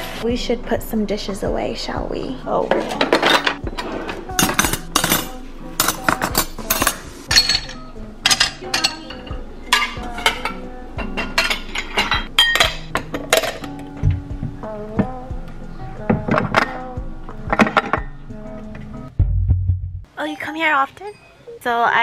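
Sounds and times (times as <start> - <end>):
utensils clinking into drawer: 2.7 - 9.2
dishes clinking: 2.7 - 14.0, 17.5 - 18.2.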